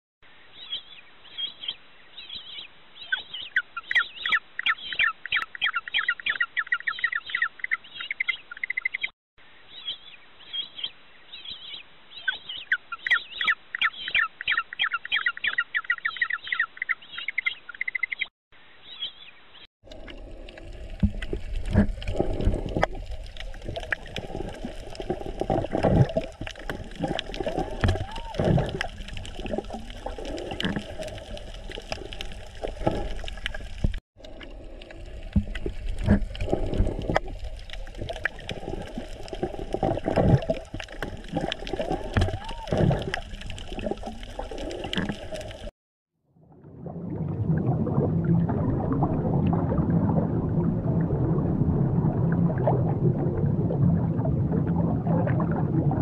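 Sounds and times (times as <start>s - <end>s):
high bird chirps: 0.6s - 9.1s, 9.7s - 19.7s
underwater water rushing and bubbling: 19.8s - 45.7s, 46.4s - 56.0s.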